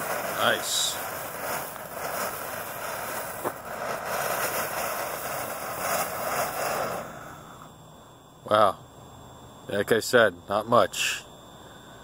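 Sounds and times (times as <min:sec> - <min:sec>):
fountain firework hissing: 0:00.0 - 0:07.8.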